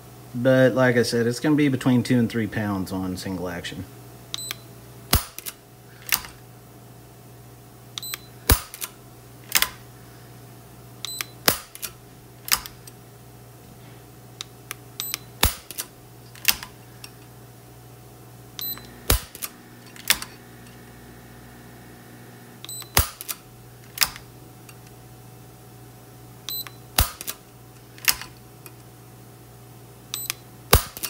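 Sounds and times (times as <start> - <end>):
revolver hammer clicks: 4.3 - 6.4, 7.9 - 9.8, 11.0 - 13.0, 14.4 - 17.2, 18.6 - 20.8, 28.0 - 28.8, 30.1 - 31.0
low hum: 15.0 - 26.8
short electronic beep: 18.6 - 19.0.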